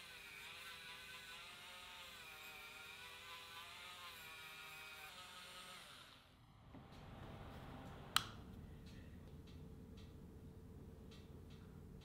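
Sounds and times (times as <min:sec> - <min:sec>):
rotary tool motor whine: 0:00.0 - 0:06.4.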